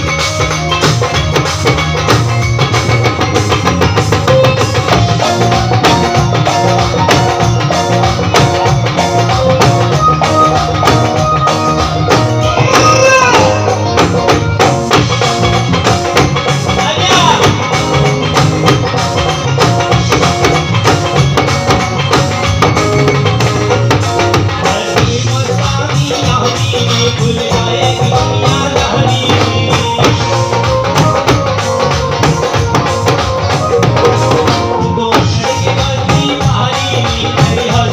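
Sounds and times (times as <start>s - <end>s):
drum kit beat: 0.0s - 37.9s
electric guitar: 0.0s - 37.9s
keyboard: 0.0s - 37.9s
person singing into microphone: 12.4s - 14.6s, 24.3s - 31.7s, 34.3s - 37.9s.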